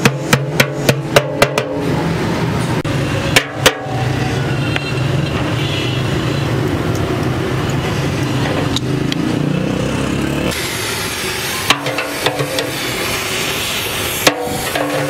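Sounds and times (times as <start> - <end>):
sharp knocks: 0.0 - 1.8.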